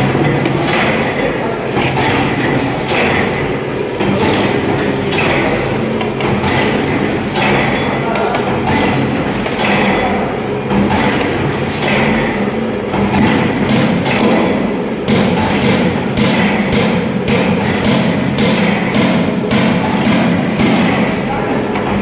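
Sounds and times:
sharp machine knock: 0:00.0 - 0:22.0.

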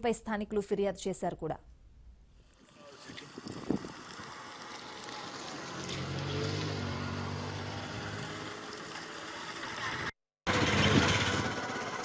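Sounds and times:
engine humming: 0:03.2 - 0:12.0.

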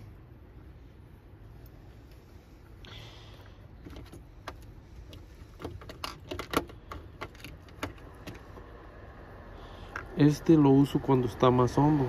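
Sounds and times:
fishing tackle clicks and rattles: 0:05.5 - 0:08.4.

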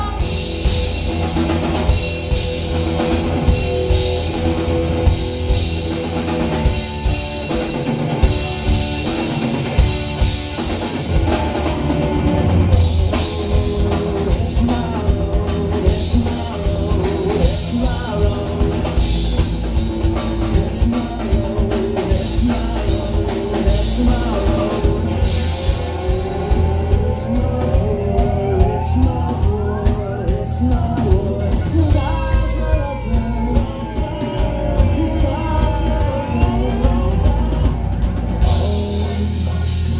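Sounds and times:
bass guitar: 0:00.0 - 0:39.9
drum kit: 0:00.0 - 0:39.9
electric guitar: 0:00.0 - 0:39.9
person singing lead: 0:20.4 - 0:39.9
rising pitch slide: 0:23.0 - 0:38.8.

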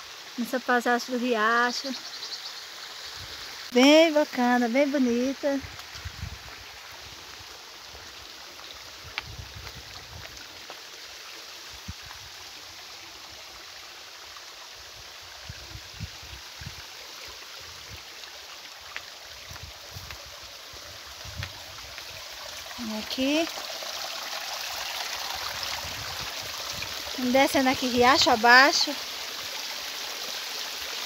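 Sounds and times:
creek water rushing: 0:00.0 - 0:31.0.

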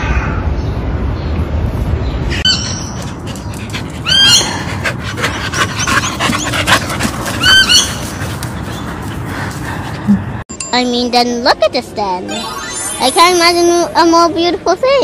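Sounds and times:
dog whining: 0:02.3 - 0:08.9
dog panting: 0:02.9 - 0:10.4.

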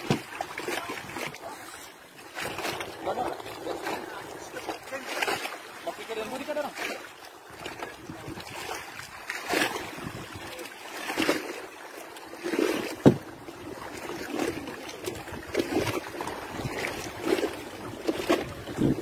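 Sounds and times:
water splashing against boat hull: 0:00.0 - 0:19.0
wind buffeting microphone: 0:17.8 - 0:19.0.

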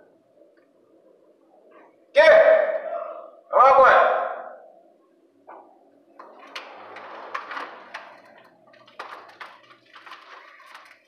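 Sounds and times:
wires rustling and scraping: 0:06.2 - 0:11.0.

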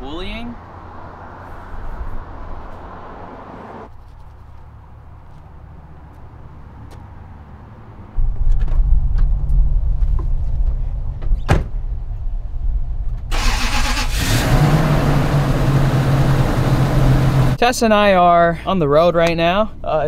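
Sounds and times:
pickup truck engine starting: 0:13.3 - 0:17.6.

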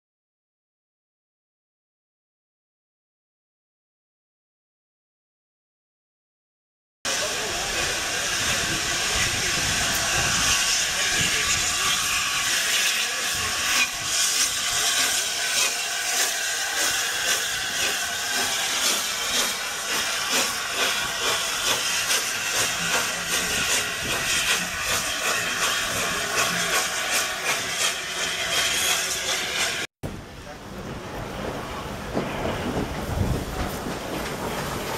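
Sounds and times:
steam hissing: 0:07.1 - 0:29.9
steam locomotive chuffing: 0:07.1 - 0:29.9.

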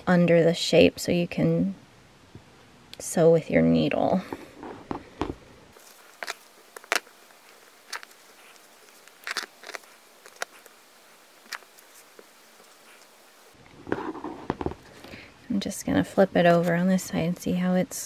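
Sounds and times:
fabric rustling and tapping: 0:13.8 - 0:14.8.

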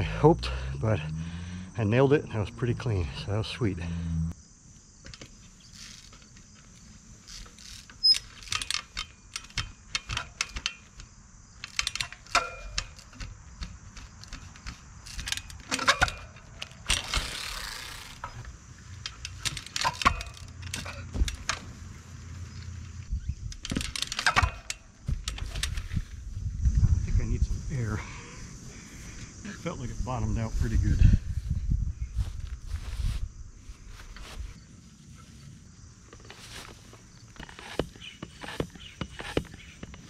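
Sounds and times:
insects chirring: 0:00.0 - 0:40.0
bike drivetrain clicks and rattles: 0:05.0 - 0:26.8, 0:36.0 - 0:40.0.

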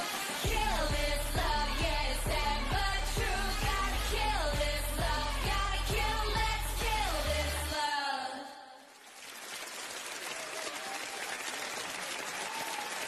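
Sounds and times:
pop song sung note: 0:00.0 - 0:08.8
audience applause: 0:08.9 - 0:13.0.

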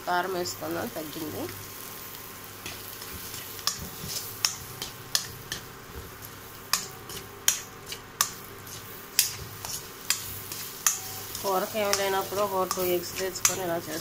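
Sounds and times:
low sizzle: 0:00.0 - 0:14.0
spoon scraping a steel pan: 0:06.8 - 0:14.0.

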